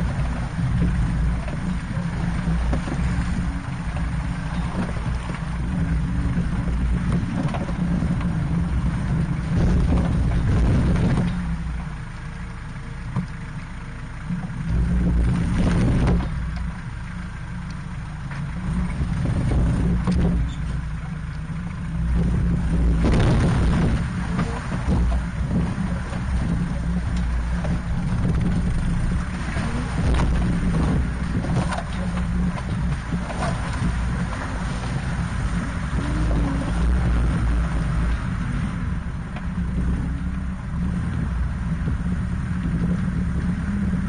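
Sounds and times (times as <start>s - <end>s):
off-road vehicle engine rumbling: 0.0s - 44.0s
bursts of noise from rough ground: 21.8s - 44.0s.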